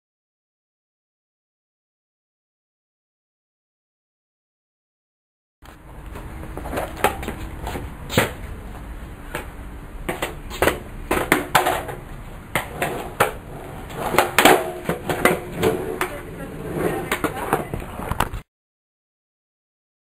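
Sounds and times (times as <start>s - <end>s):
skateboard knocks on concrete: 10.1s - 17.8s.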